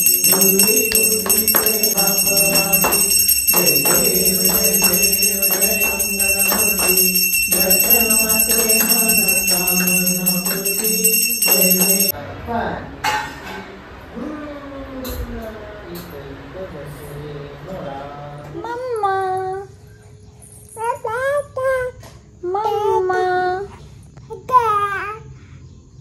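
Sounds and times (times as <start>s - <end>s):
hand bell ringing: 0.0s - 12.1s.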